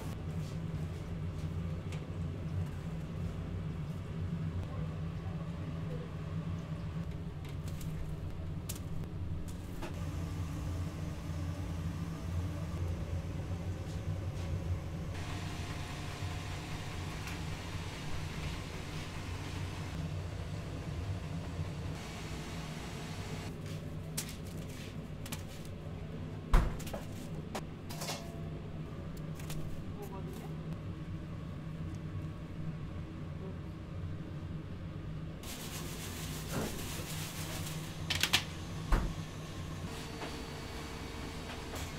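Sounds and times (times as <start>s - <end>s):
low machine hum: 0.0s - 24.1s.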